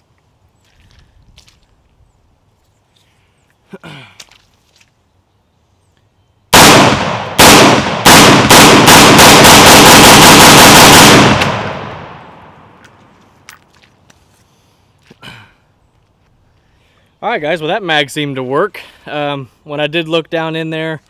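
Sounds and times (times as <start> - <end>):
pistol gunshots: 6.5 - 12.3
gunshot echo: 6.5 - 12.6.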